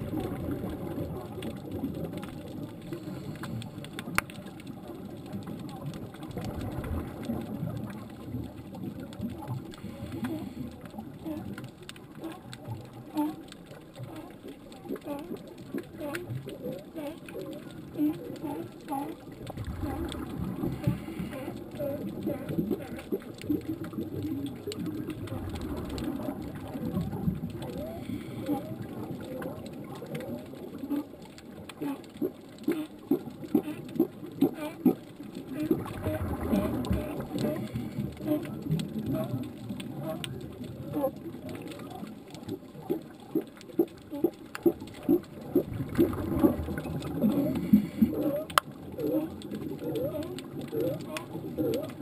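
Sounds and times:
faint clicks: 0.0 - 52.0
underwater gurgling and bubbling: 0.0 - 52.0
sea lion low calls: 46.4 - 52.0.

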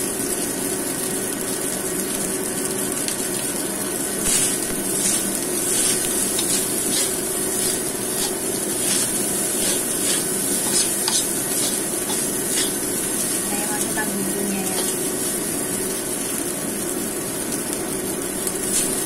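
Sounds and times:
rice sizzling in a wok: 0.0 - 19.0
metal spatula scraping a pan: 4.3 - 13.4.

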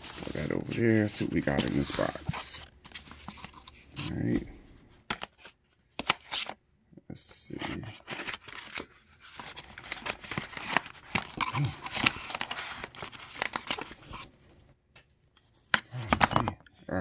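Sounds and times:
cardboard packaging scraping and rustling: 0.0 - 4.4, 7.5 - 14.3.

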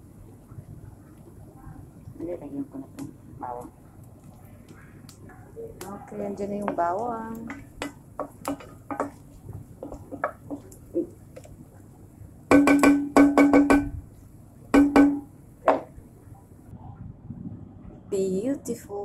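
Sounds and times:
wooden spoon stirring onions: 3.0 - 12.0
spoon knocking on pot: 6.6 - 9.2, 9.8 - 11.5, 12.5 - 13.9, 14.8 - 15.9.

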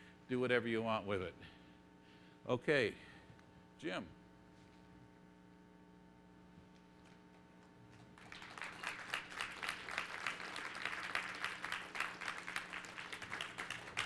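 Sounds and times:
audience applauding: 8.2 - 14.0.

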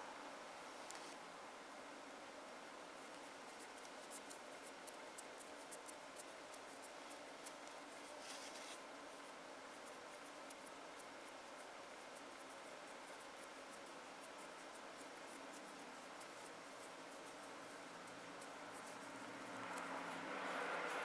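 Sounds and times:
short rub: 7.4 - 8.8.

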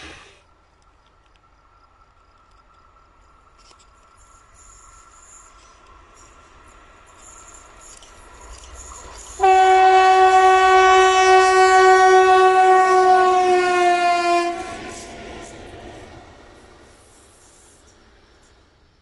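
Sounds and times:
locomotive running noise: 0.0 - 19.0
diesel locomotive horn blast: 9.4 - 15.6.

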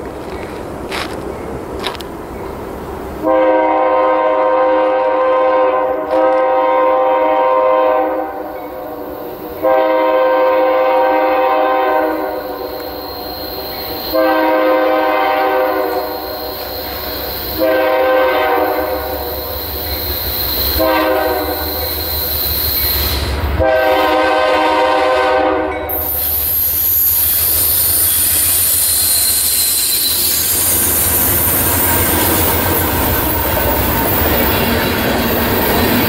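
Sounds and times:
train air horn blasts: 3.2 - 30.9
wheel squeal: 12.4 - 14.3, 15.8 - 17.7, 19.1 - 20.9, 21.5 - 23.4, 25.9 - 36.0.

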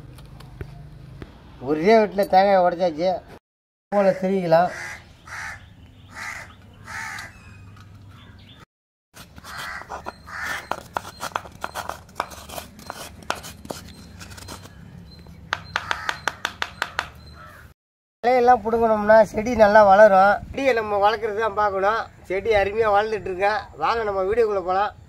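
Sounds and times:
crows cawing: 4.0 - 8.6, 9.4 - 10.8, 15.7 - 17.7
spoon scraping coconut shell: 9.2 - 17.0.

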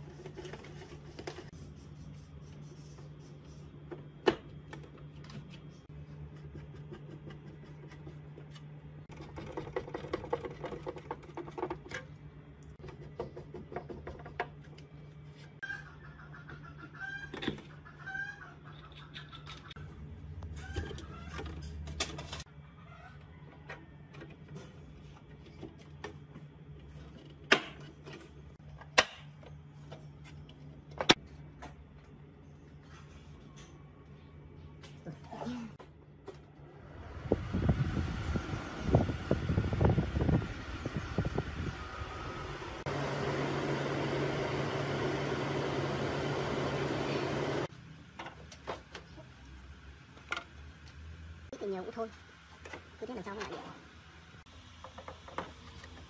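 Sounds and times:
chicken clucking: 15.6 - 19.8.

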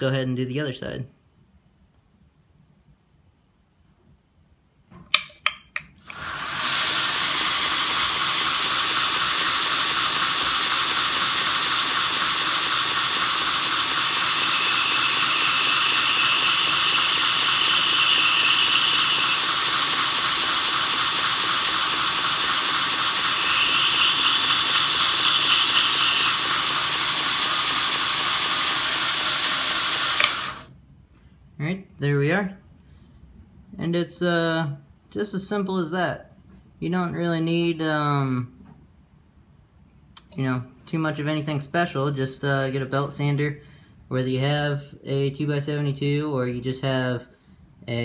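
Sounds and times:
drill bit grinding hiss: 6.0 - 30.7
belt grinder running: 6.1 - 30.7.

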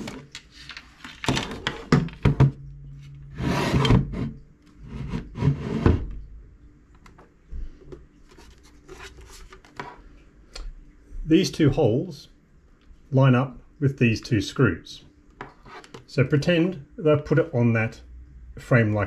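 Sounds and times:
scrape on wooden desk: 3.3 - 6.1, 15.5 - 16.0.

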